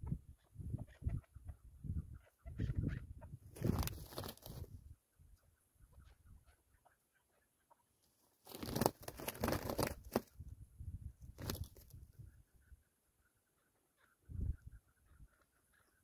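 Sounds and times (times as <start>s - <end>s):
bird wings flapping on grass: 3.5s - 4.8s, 8.4s - 10.4s, 11.2s - 12.0s.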